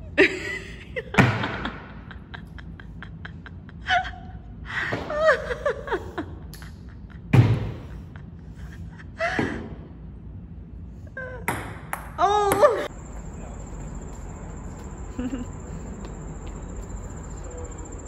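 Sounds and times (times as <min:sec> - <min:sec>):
table tennis ball bouncing: 0:11.5 - 0:12.9.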